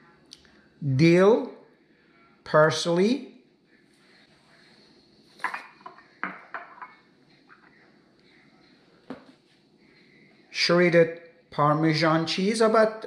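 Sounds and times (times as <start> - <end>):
ceramic bowls clinking on stone: 5.4 - 7.1.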